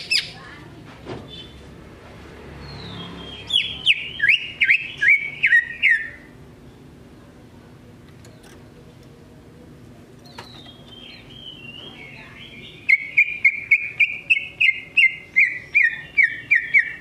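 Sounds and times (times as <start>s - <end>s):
bird singing: 2.6s - 6.9s, 10.2s - 17.0s.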